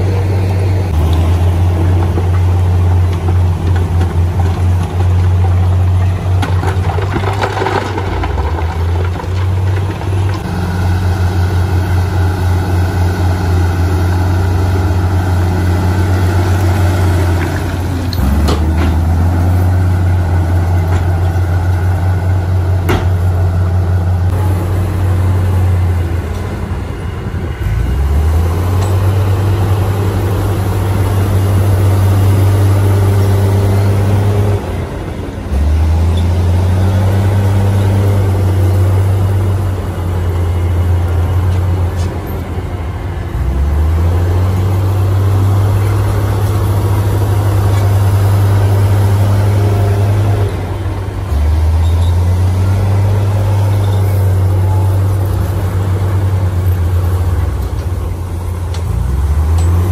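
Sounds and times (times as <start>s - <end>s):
diesel truck engine humming: 0.0s - 59.9s.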